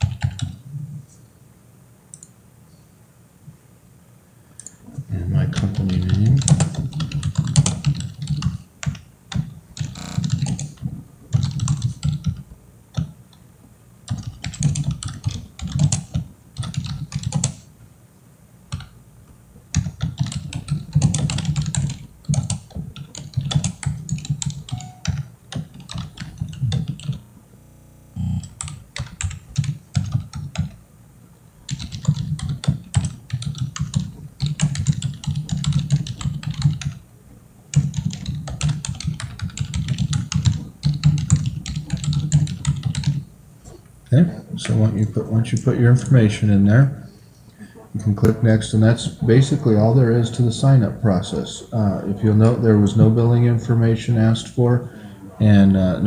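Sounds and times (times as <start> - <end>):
typing on computer keyboard: 0.0 - 0.6, 5.6 - 13.1, 14.1 - 17.6, 19.7 - 27.2, 28.4 - 30.8, 31.7 - 37.0, 37.7 - 43.2.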